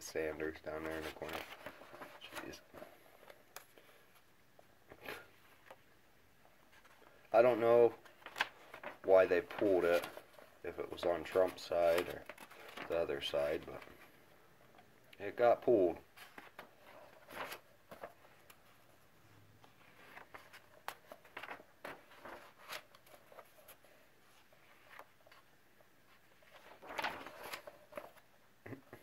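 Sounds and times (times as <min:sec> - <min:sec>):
paper pages rustling: 0:00.8 - 0:04.3, 0:06.6 - 0:14.2, 0:16.0 - 0:18.8, 0:19.6 - 0:25.5, 0:26.1 - 0:28.3.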